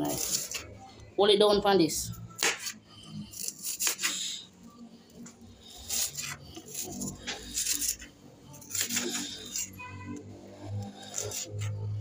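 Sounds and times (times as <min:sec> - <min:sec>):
knife slicing onion on board: 0:02.4 - 0:04.4, 0:05.7 - 0:08.0, 0:08.6 - 0:09.8, 0:11.0 - 0:12.0.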